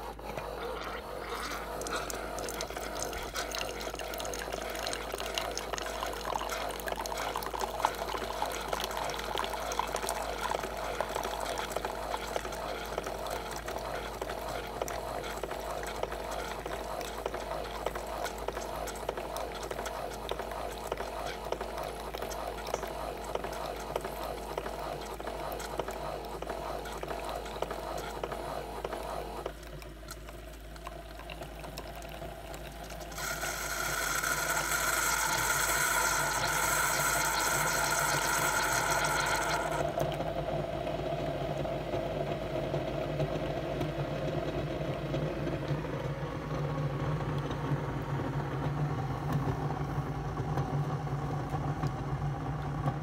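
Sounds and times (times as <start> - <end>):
coffee running into a mug: 0.0 - 40.2
low hum of pump and motor: 0.0 - 53.0
coffee machine loud hiss: 33.1 - 39.9.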